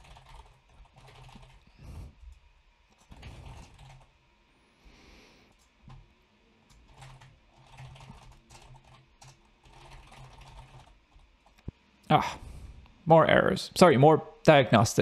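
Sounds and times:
computer keyboard typing: 0:00.0 - 0:01.6, 0:02.9 - 0:04.1, 0:06.7 - 0:11.6.

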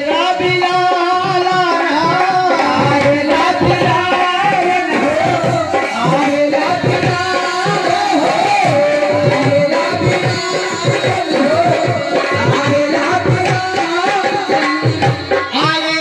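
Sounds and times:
person singing: 0:00.0 - 0:16.0
quick tabla beat: 0:00.0 - 0:16.0.

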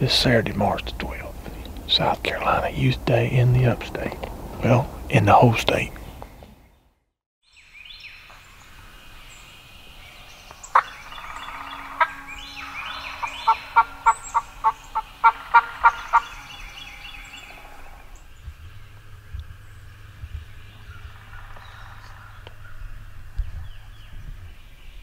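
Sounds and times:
high bird chirps: 0:07.4 - 0:25.0
wild turkeys calling: 0:07.9 - 0:24.0.

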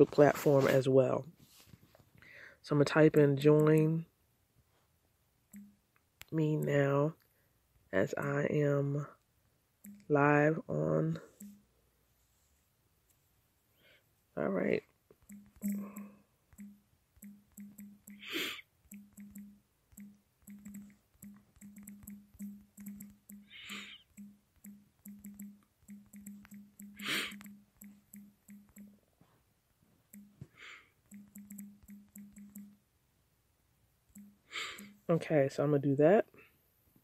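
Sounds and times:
computer keyboard typing: 0:15.2 - 0:29.0, 0:31.0 - 0:32.8.

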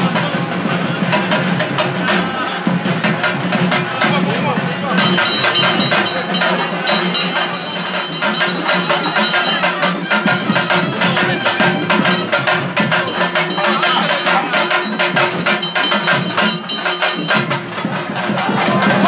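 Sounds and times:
temple bells clanging: 0:05.0 - 0:18.2.

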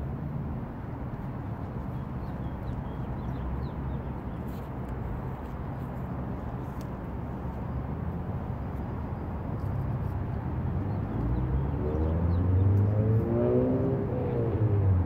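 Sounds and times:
vehicle engine accelerating: 0:10.9 - 0:15.0.

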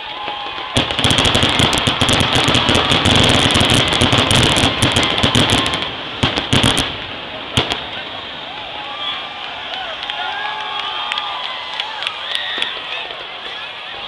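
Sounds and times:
firework bangs: 0:00.0 - 0:11.2
fireworks crackling: 0:00.0 - 0:14.0.

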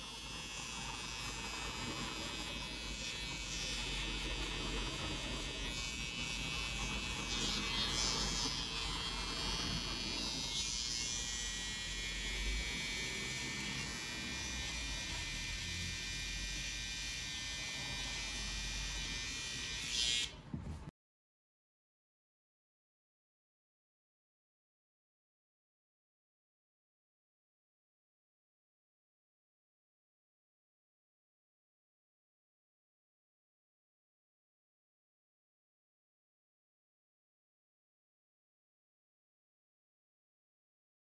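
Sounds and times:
electric hair trimmer buzzing: 0:00.0 - 0:20.5.

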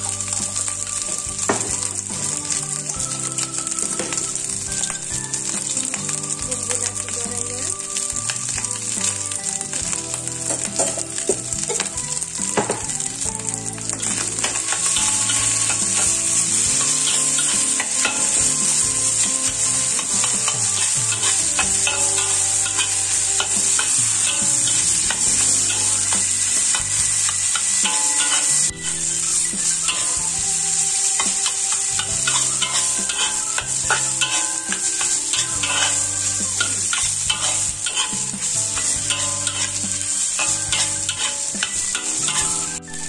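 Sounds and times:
fried rice sizzling in a wok: 0:00.0 - 0:43.0
metal spatula clacking on a pan: 0:14.0 - 0:28.6, 0:31.1 - 0:42.7.

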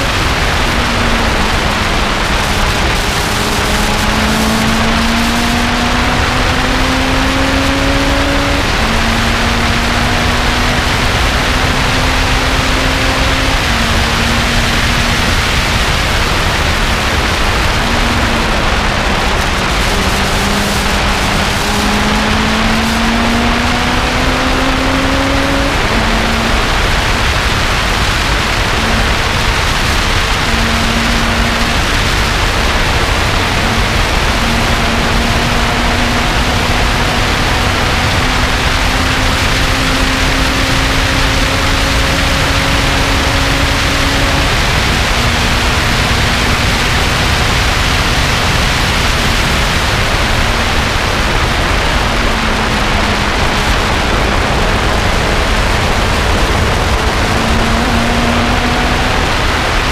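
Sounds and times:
faint car engine: 0:00.0 - 0:59.9
wind and road noise: 0:00.0 - 0:59.9.

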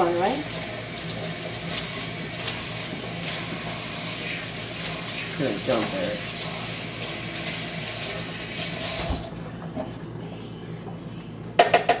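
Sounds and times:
running water: 0:00.0 - 0:09.4.

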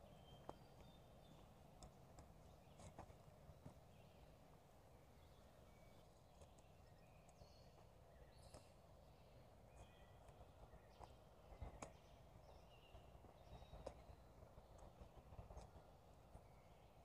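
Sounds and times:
faint ticks: 0:00.4 - 0:03.8, 0:06.3 - 0:08.8, 0:09.7 - 0:15.9.

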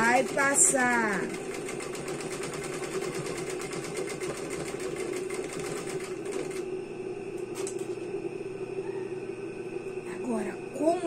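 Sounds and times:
industrial sewing machine stitching: 0:00.0 - 0:06.7
steady hum: 0:06.0 - 0:11.0.

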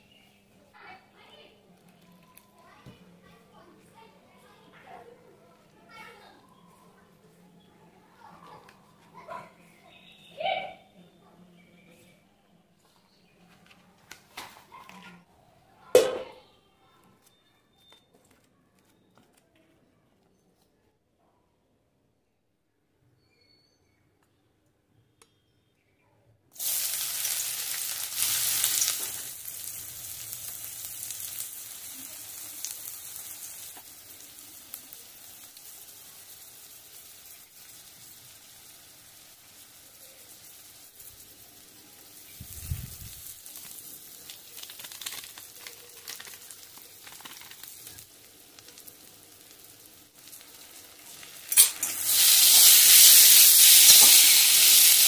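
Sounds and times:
onions sizzling in hot oil: 0:26.6 - 0:55.0.

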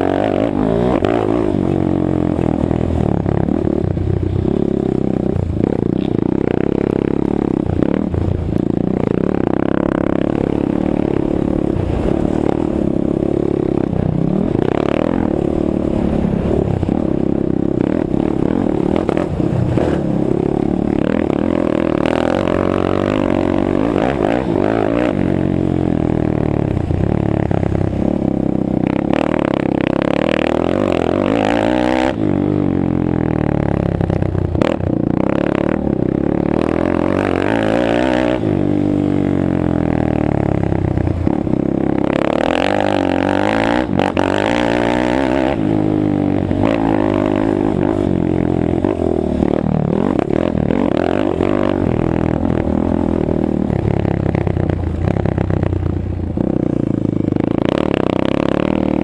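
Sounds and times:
quad bike engine revving: 0:00.0 - 0:59.0.

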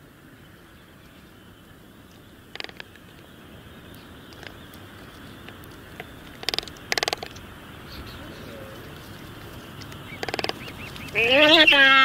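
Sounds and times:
outdoor background hiss: 0:00.0 - 0:12.0
harsh buzzing animal calls: 0:02.4 - 0:12.0.

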